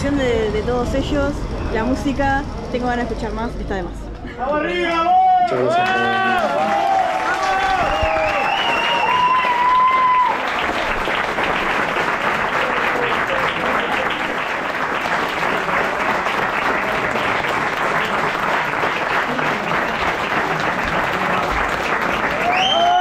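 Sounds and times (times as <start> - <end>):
crowd shouting: 4.4 - 10.6
audience applauding: 4.4 - 23.0.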